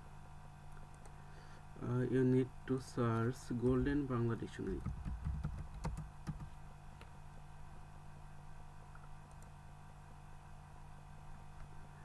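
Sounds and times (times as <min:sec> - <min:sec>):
faint low hum: 0:00.0 - 0:12.0
computer keyboard keystrokes: 0:04.6 - 0:06.5, 0:09.0 - 0:09.5.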